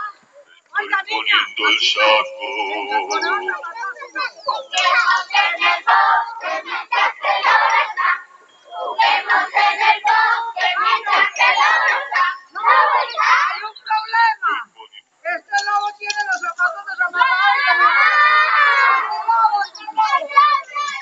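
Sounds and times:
children singing: 2.0 - 13.6, 17.6 - 21.0.

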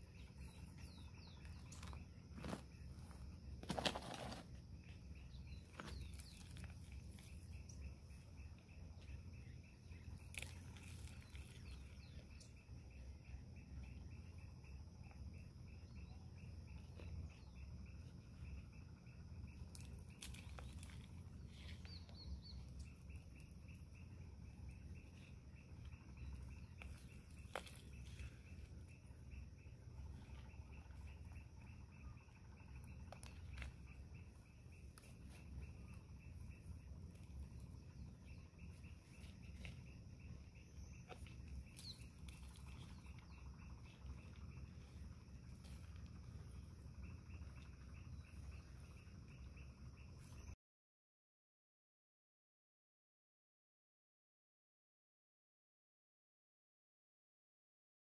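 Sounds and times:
faint low rumble: 0.0 - 50.4
cricket chirping: 0.0 - 50.6
hand tool digging soil: 1.7 - 4.6, 26.2 - 28.8.

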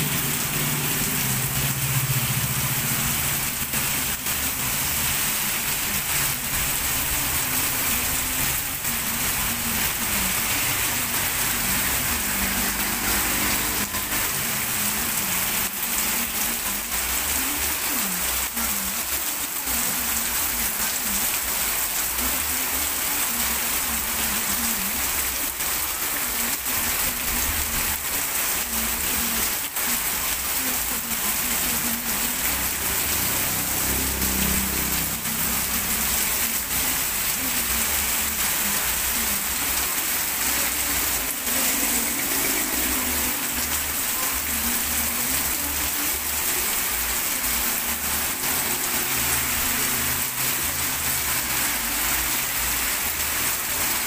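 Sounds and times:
heavy rain on pavement: 0.0 - 54.0.

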